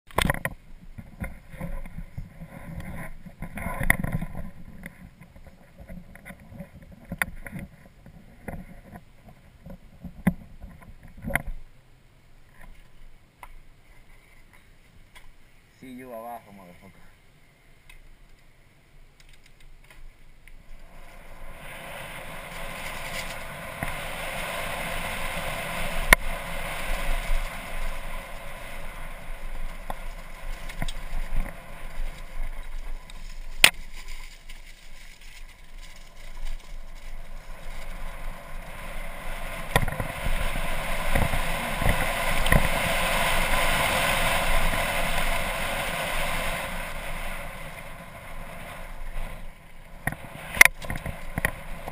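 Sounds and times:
wind on camera: 0.1 - 11.7, 19.4 - 51.9
bike rattling over rough trail: 0.1 - 11.8, 19.1 - 51.9.

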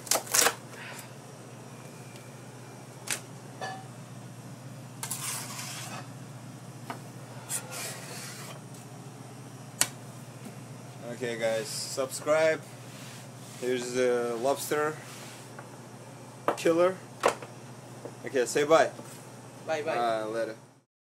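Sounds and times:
low kitchen hum: 0.0 - 20.9.

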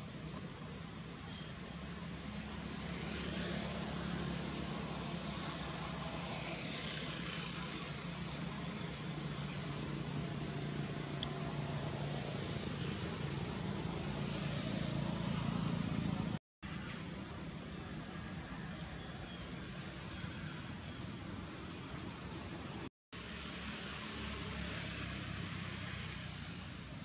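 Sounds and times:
low engine hum: 0.0 - 16.4
outdoor background noise: 0.0 - 27.0.

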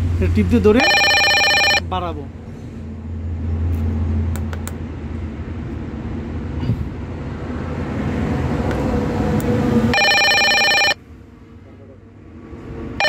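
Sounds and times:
ringing electronic tone: 0.8 - 1.8, 9.9 - 11.0.

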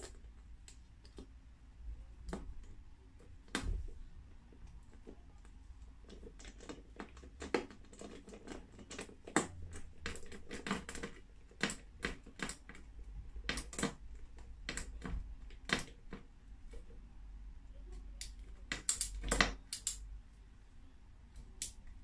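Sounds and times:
screwdriver clicking in metal tube: 18.2 - 20.0.

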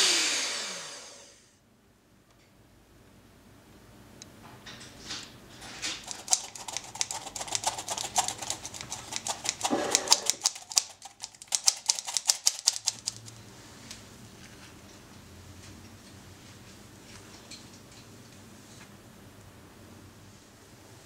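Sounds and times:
metal flour sifter rattling: 5.8 - 13.1.

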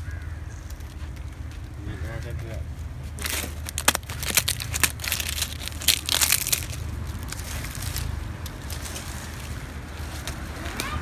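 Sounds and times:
dry leaves crunching by hand: 3.0 - 11.0.

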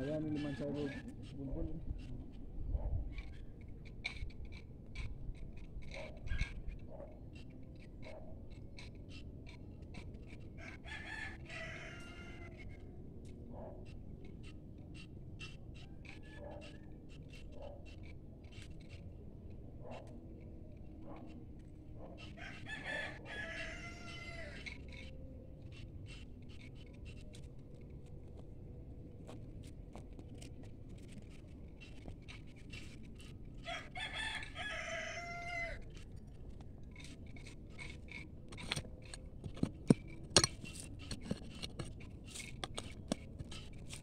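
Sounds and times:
rooster crowing: 10.6 - 12.8, 22.3 - 24.8, 33.6 - 35.9
digging tool in soil: 25.8 - 44.0.

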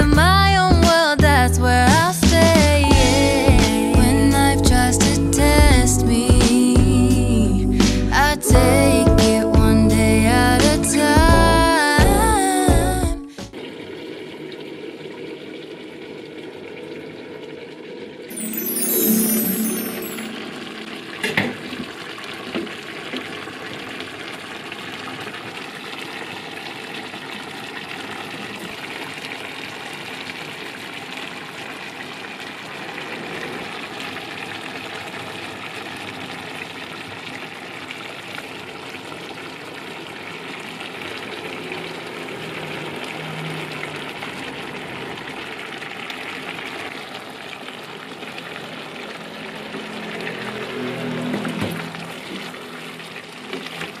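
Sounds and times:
sauce bubbling and sizzling: 13.5 - 19.2, 19.8 - 54.0.

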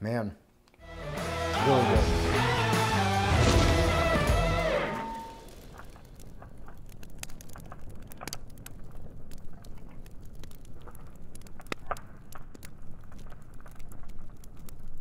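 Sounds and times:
low rush: 1.2 - 6.2
charcoal fire crackling and popping: 1.6 - 15.0.

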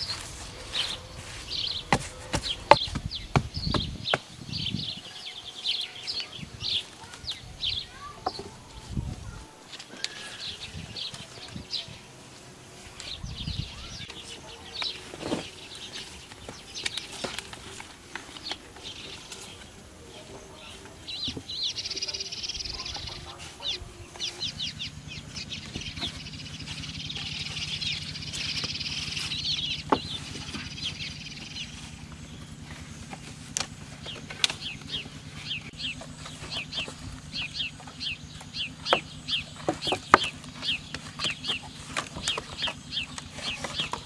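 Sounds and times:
birds chirping: 0.0 - 44.0
chickens clucking: 0.0 - 44.0
wooden poles knocking: 1.2 - 4.7, 8.0 - 8.6, 25.7 - 31.0, 35.8 - 44.0.

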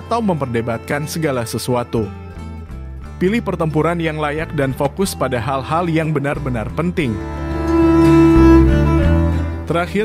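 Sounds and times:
background music with low bass: 0.0 - 10.0.

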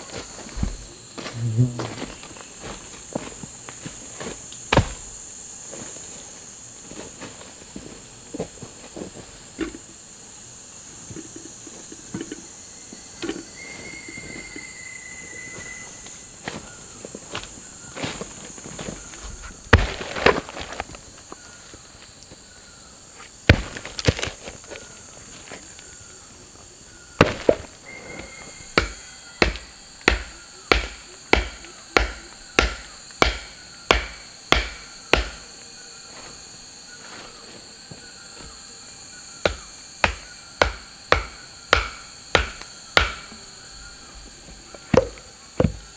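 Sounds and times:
high-pitched insect chorus: 0.0 - 45.9
tool striking wood: 4.7 - 5.1, 27.2 - 27.7, 28.7 - 35.5, 39.4 - 43.4, 44.9 - 45.9
thin whistle-like tone: 12.8 - 16.2, 27.8 - 29.4.

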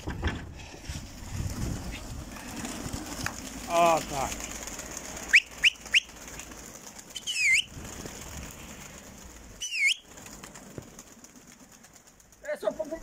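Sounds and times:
pigeons flapping wings: 0.0 - 13.0
high bird calls: 5.2 - 6.5, 7.1 - 7.8, 9.5 - 10.2
high bird chirps: 7.1 - 7.7, 9.6 - 10.1.

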